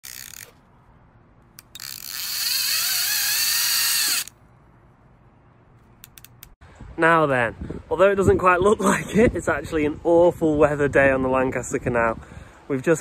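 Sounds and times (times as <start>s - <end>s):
mechanical ratcheting buzz: 0.0s - 0.6s, 1.5s - 4.4s.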